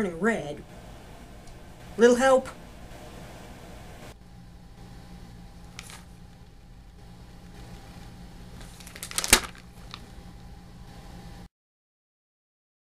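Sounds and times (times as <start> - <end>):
steady low hum: 0.0 - 11.5
paper catalog rustling: 5.6 - 6.6, 7.4 - 10.2.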